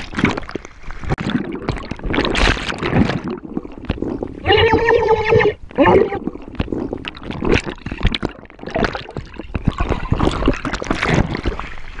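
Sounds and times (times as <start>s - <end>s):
water splashing and gurgling: 0.0s - 12.0s
person crying out: 4.4s - 6.2s.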